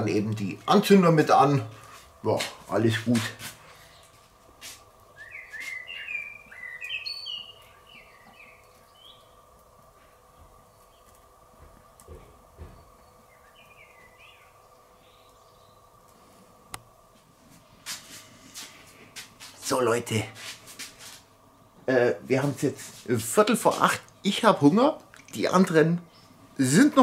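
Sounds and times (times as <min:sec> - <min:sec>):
faint steady hum: 0:00.0 - 0:27.0
songbird chirping: 0:05.1 - 0:09.6, 0:10.5 - 0:16.2.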